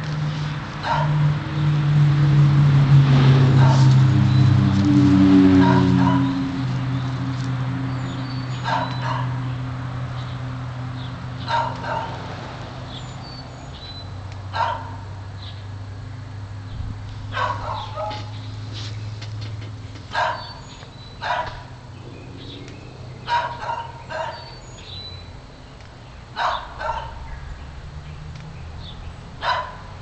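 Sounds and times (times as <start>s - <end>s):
dog barking: 0.8s - 1.2s, 3.6s - 3.9s, 5.6s - 6.4s, 8.6s - 9.4s, 11.4s - 12.2s, 14.5s - 15.0s, 17.3s - 18.4s, 20.1s - 20.6s, 21.2s - 21.7s, 23.3s - 24.5s, 26.4s - 27.2s, 29.4s - 29.9s
steady low hum: 21.5s - 30.0s.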